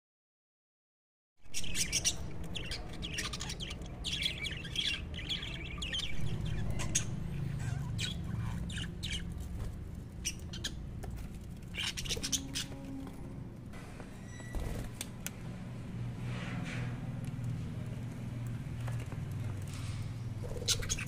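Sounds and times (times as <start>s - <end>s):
budgerigars chirping and squawking: 1.5s - 13.0s, 19.7s - 21.0s.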